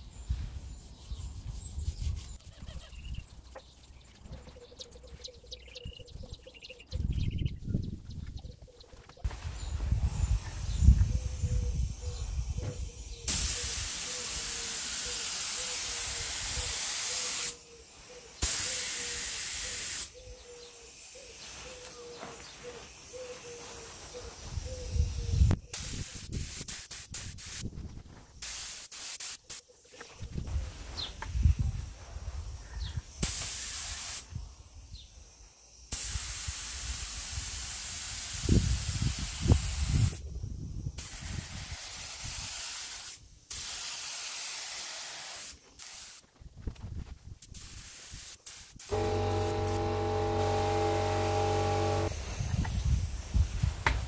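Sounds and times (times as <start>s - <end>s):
spray gun hissing: 10.2s - 24.2s, 33.1s - 34.8s, 41.0s - 46.2s, 47.5s - 53.7s.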